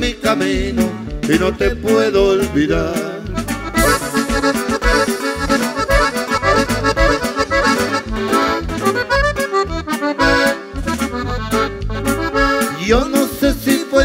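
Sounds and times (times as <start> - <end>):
acoustic guitar: 0.0 - 14.0
drums keeping steady beat: 0.0 - 14.0
electric bass: 0.0 - 14.0
button accordion: 0.1 - 14.0.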